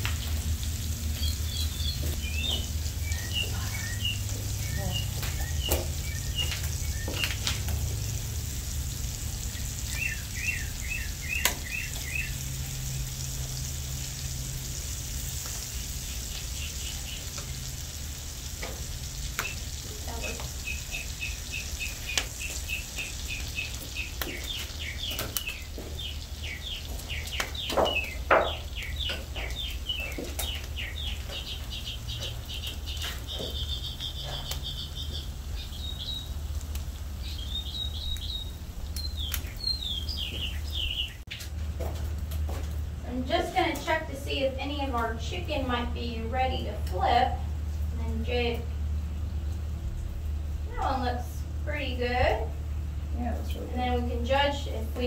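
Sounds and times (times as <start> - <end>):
chicken sizzling in butter: 0.0 - 40.9
bird chirps: 1.2 - 7.6, 9.5 - 12.6, 15.7 - 17.7, 19.4 - 36.4, 37.2 - 41.2.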